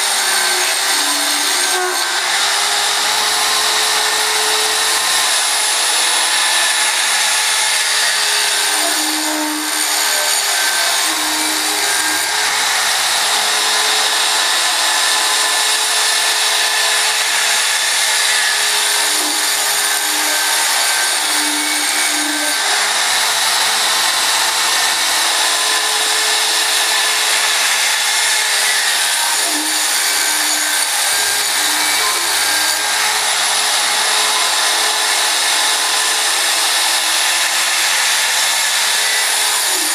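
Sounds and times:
router saw blade cutting board: 0.0s - 39.9s.

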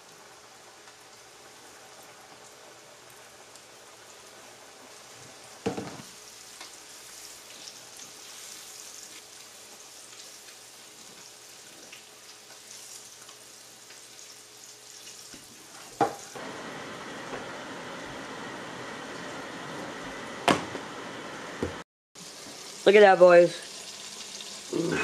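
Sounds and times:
fish frying in oil: 0.0s - 16.4s, 22.2s - 25.0s.

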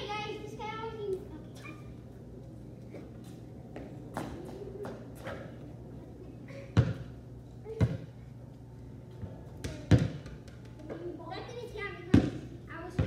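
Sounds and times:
basketball bouncing on concrete: 6.8s - 7.1s, 7.7s - 8.1s, 9.6s - 10.8s, 12.1s - 13.0s.

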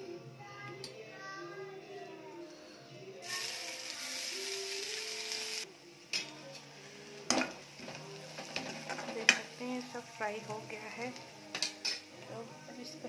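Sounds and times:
paste sizzling in hot oil: 3.2s - 5.7s.

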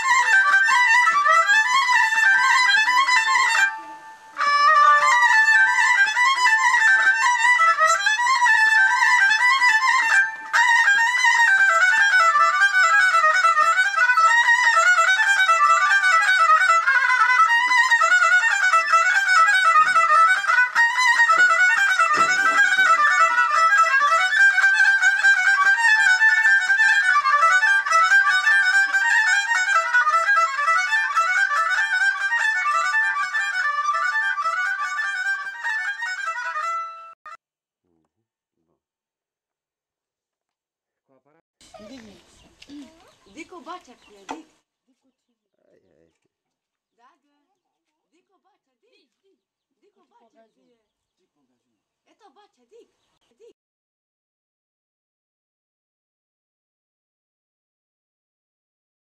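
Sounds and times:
horn violin playing dance tune: 0.0s - 37.2s.

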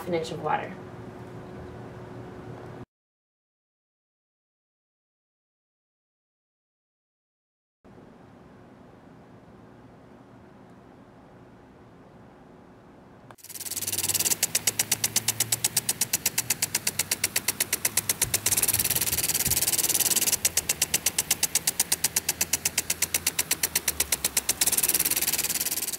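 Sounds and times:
loud hiss: 13.4s - 25.9s
rapid mechanical ticking: 13.4s - 25.9s.

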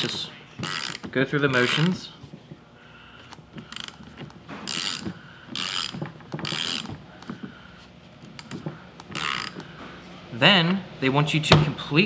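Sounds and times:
ratchet wrench clicking: 0.6s - 1.9s, 4.7s - 6.9s, 8.4s - 9.6s.

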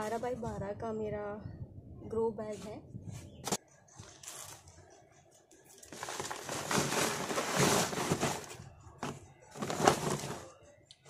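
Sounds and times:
dry soil pouring into plastic bag: 5.9s - 10.5s.

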